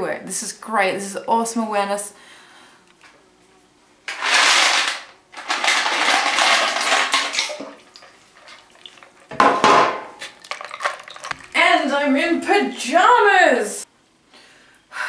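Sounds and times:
ice and water sloshing in bucket: 4.2s - 9.6s, 10.2s - 11.8s.

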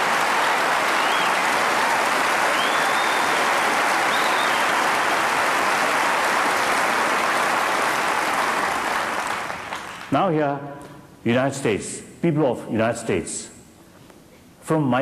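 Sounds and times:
crowd applauding: 0.0s - 10.1s.

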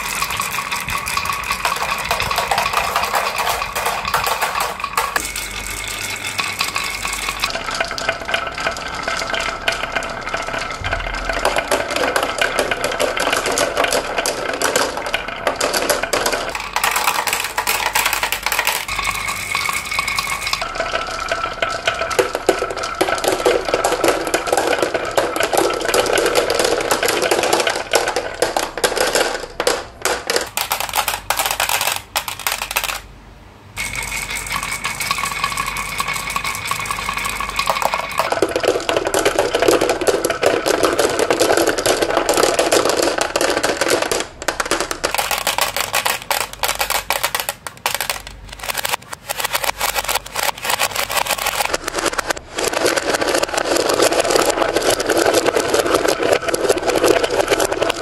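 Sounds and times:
marbles clattering down tracks: 0.0s - 33.2s, 33.8s - 58.0s
marbles rolling rumble: 0.0s - 33.2s, 33.8s - 58.0s.

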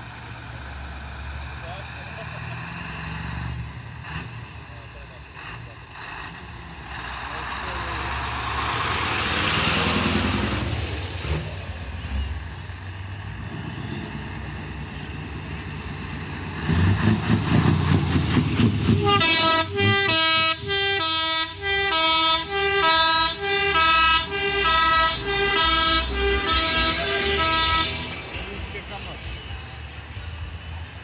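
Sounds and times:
heavy trucks driving past: 0.0s - 31.0s
truck air horn blasts: 18.9s - 28.2s.

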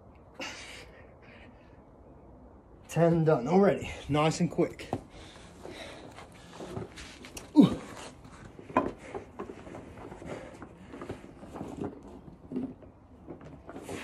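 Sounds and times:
person breathing hard: 5.0s - 8.2s
person grunting: 7.5s - 8.0s.

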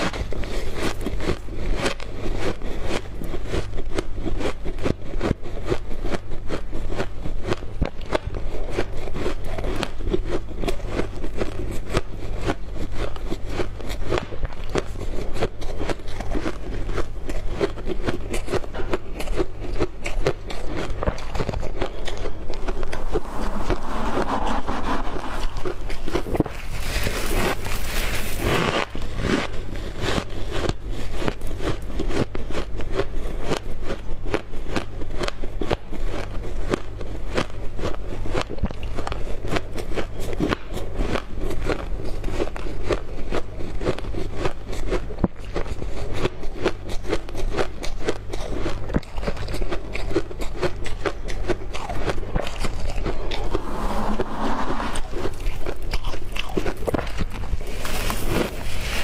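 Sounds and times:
chewing crunchy ice: 0.0s - 23.4s, 25.5s - 53.6s, 55.1s - 59.0s
steady low hum: 0.0s - 59.0s
scraping packed ice: 22.1s - 31.4s, 55.0s - 59.0s.

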